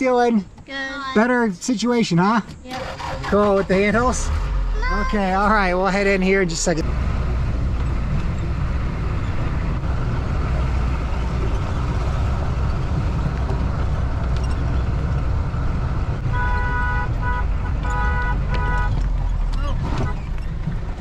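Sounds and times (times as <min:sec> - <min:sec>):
low engine and road rumble: 0:00.0 - 0:21.0
vehicle horn blasts: 0:16.2 - 0:19.0.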